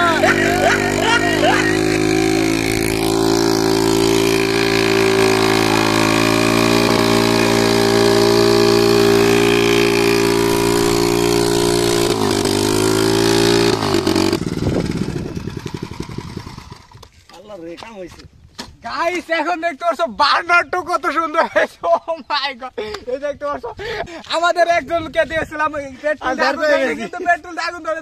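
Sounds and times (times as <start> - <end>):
tyre spinning on road: 0.0 - 17.2
small motorbike engine revving: 0.0 - 17.3.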